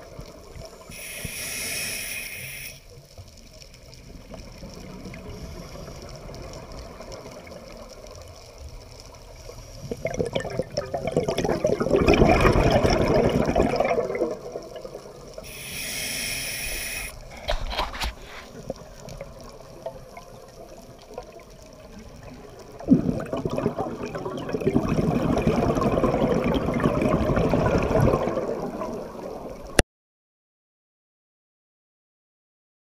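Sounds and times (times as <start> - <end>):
regulator hissing inhale: 0.7 - 2.9, 15.4 - 18.6
exhaled bubbles underwater: 9.8 - 17.4, 18.5 - 29.8.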